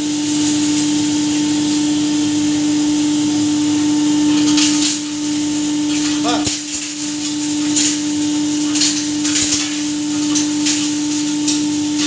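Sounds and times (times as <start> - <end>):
hammer mill humming: 0.0 - 12.0
sharp crackles of shattering pieces: 4.3 - 12.0.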